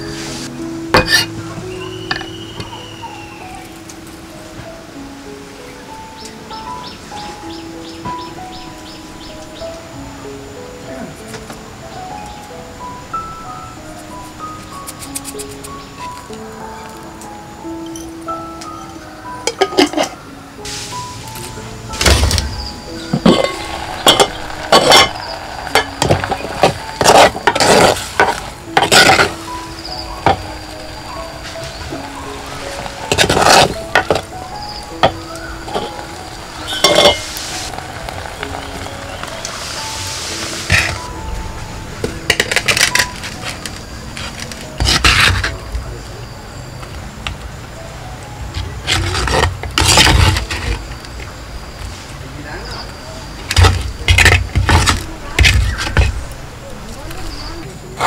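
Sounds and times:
food sizzling: 0.0s - 10.4s, 11.1s - 45.8s
ladle scraping and knocking clay pot: 0.9s - 1.4s, 22.0s - 29.5s, 31.7s - 34.3s, 36.6s - 39.3s, 40.3s - 41.1s, 42.3s - 45.6s, 48.8s - 50.8s, 53.5s - 56.3s.

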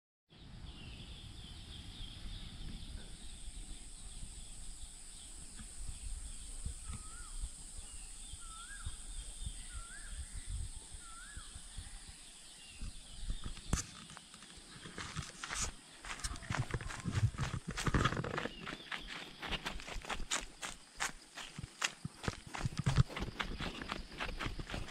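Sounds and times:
wind rumble on microphone: 0.3s - 14.0s, 14.7s - 20.3s
high-pitched insect drone: 3.1s - 24.9s.

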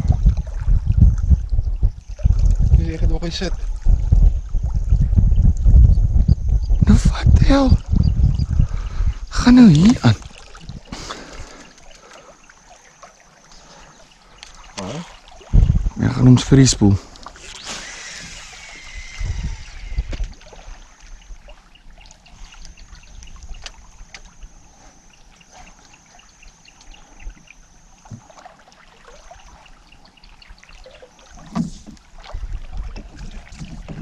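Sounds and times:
knocks and low rumbles: 0.0s - 9.4s, 15.5s - 16.4s
water lapping against hull: 0.0s - 34.0s
faint ticks: 11.1s - 12.6s, 14.3s - 14.8s, 22.1s - 28.2s.

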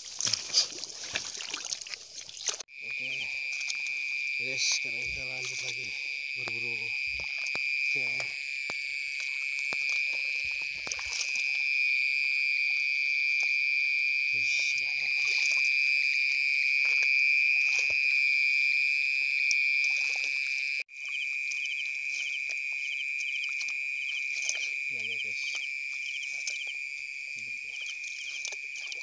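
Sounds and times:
water sloshing from wading: 0.0s - 11.8s, 14.4s - 15.9s, 19.8s - 29.0s
night insects trilling: 0.0s - 29.0s.

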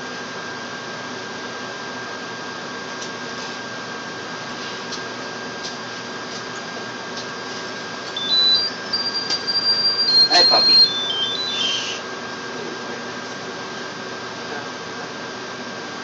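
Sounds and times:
thin constant high tone: 8.2s - 12.0s.

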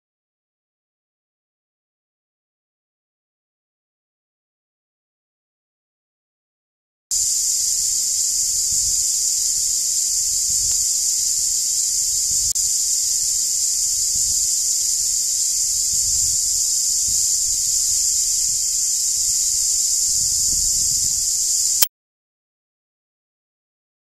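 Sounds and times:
cicadas buzzing: 7.1s - 21.9s.

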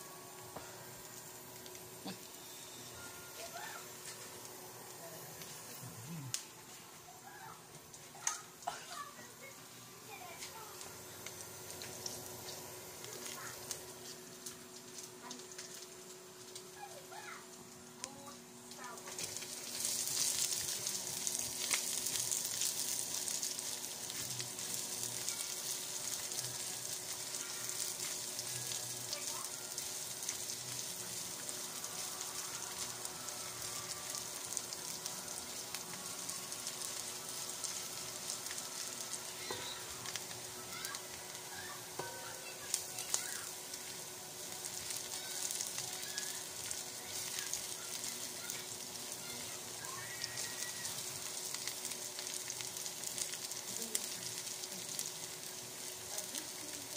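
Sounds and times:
garlic sizzling in oil: 0.0s - 56.9s
spatula tapping pan: 42.0s - 42.5s.

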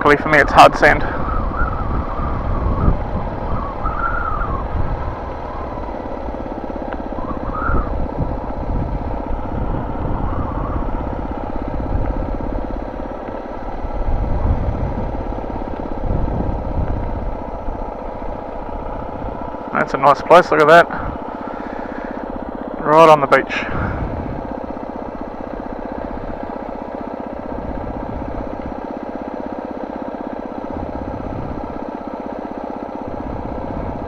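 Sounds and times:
wind rumble on microphone: 0.0s - 19.6s, 23.6s - 26.6s, 27.4s - 28.8s, 30.7s - 31.8s, 33.0s - 34.0s
motorcycle engine running: 0.0s - 34.0s.

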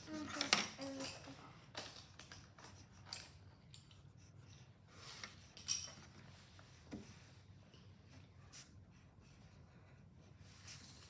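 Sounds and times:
pencil scratching on paper: 0.0s - 1.4s, 2.4s - 5.5s.

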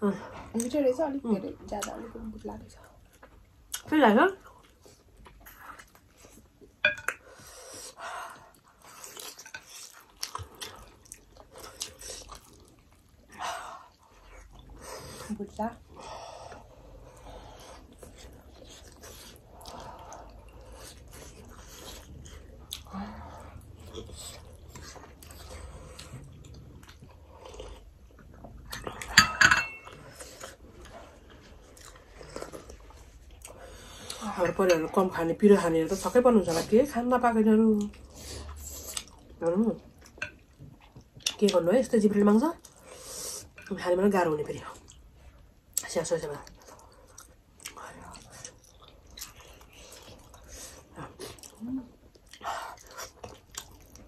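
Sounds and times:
people chewing and smacking lips: 0.1s - 54.0s
dishes clinking: 6.8s - 7.2s, 29.1s - 30.0s.

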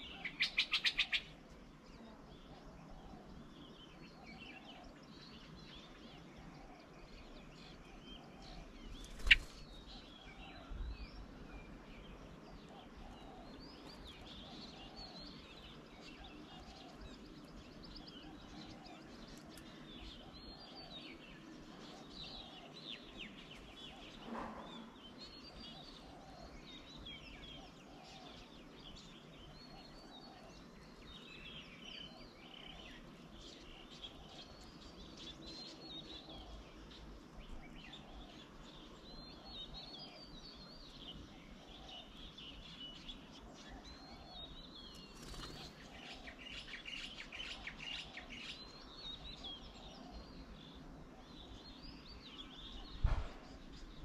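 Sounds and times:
birds chirping and calling: 0.0s - 54.0s
low repeated bird call: 0.0s - 54.0s
soft thump: 53.0s - 53.5s.

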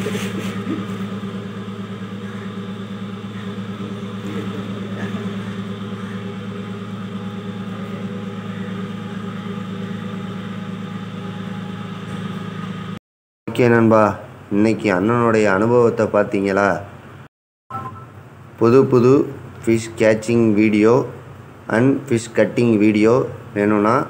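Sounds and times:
boat engine idling: 0.0s - 13.0s.

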